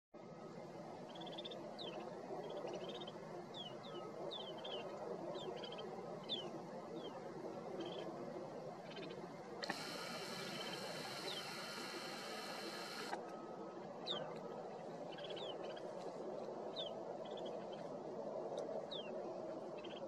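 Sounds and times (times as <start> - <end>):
flock of birds calling: 9.6 - 13.2.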